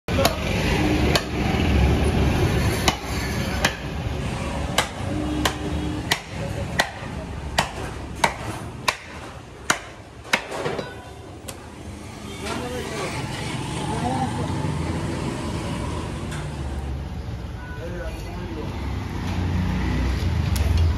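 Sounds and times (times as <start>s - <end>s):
cleaver chopping on wooden block: 1.1s - 1.4s, 4.7s - 10.7s.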